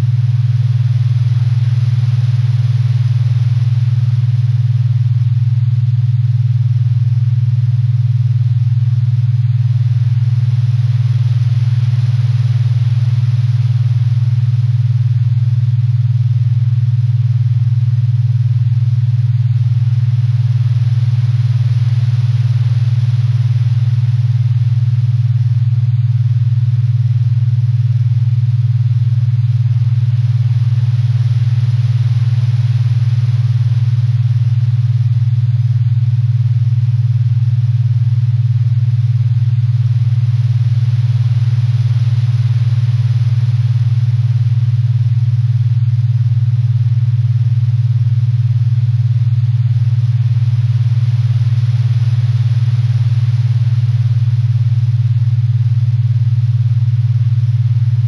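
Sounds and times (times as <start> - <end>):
pulsing low hum: 0.0 - 58.0
synthesized ambient drone: 20.3 - 25.0.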